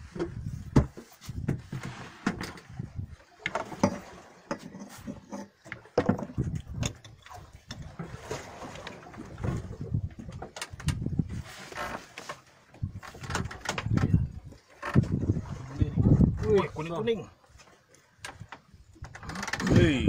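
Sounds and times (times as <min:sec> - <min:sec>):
knocks and taps on boat side: 0:00.1 - 0:02.6, 0:05.7 - 0:07.0.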